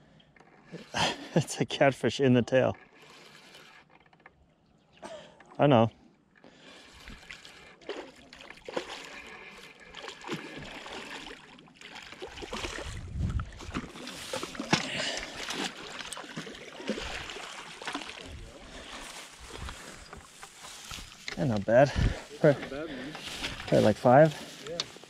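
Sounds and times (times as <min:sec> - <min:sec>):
fish thrashing and splashing: 0:06.6 - 0:21.3, 0:21.9 - 0:25.0.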